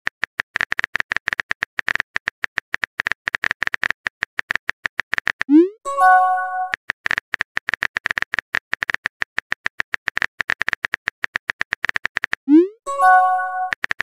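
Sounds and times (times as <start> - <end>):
message sent notification chime: 5.5 - 6.7, 12.5 - 13.7.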